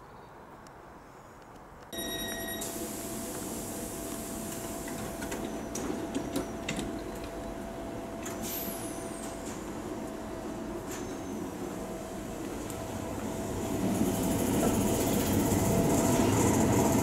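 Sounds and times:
train hum with whine: 0.0 - 17.0
sliding doors clicking shut: 4.5 - 7.4.

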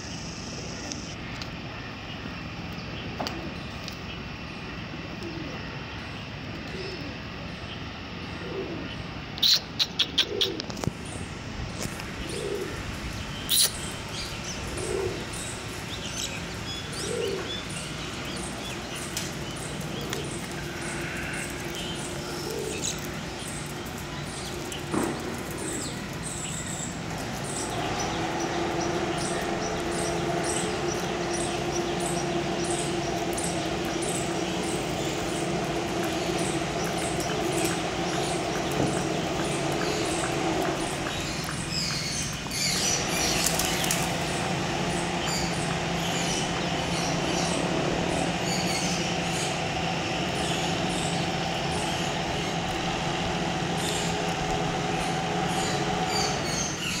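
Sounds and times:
steady low hum: 0.0 - 57.0
dove cooing: 5.2 - 5.7, 6.6 - 7.3, 8.3 - 10.8, 12.2 - 12.9, 14.6 - 15.4, 16.9 - 17.8, 19.9 - 23.6.

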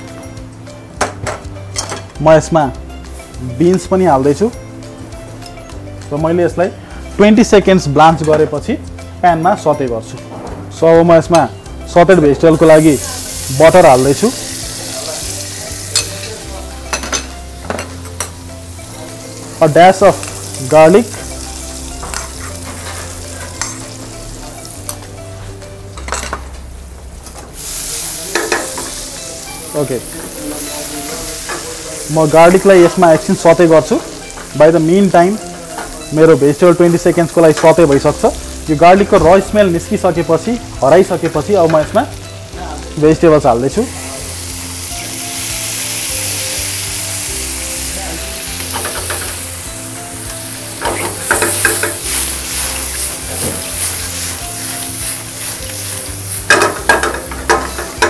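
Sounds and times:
butter and garlic sizzling in pan: 11.3 - 26.7, 27.5 - 58.0.

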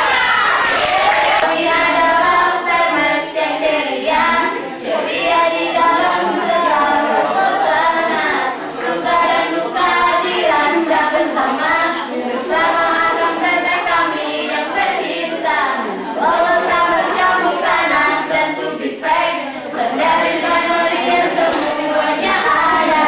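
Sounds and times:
group shouting: 0.0 - 1.5
women singing cheer song: 0.0 - 23.0.

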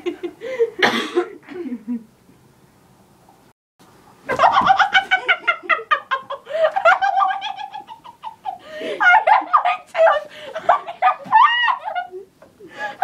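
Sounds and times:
children giggling: 4.3 - 12.4.

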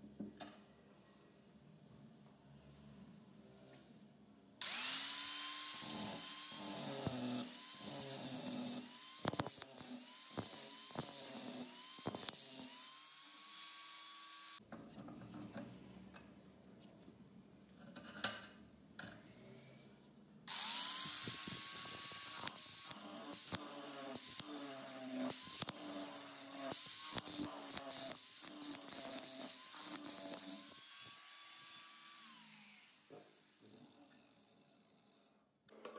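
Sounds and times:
angle grinder grinding metal: 4.6 - 14.6, 20.5 - 34.5.

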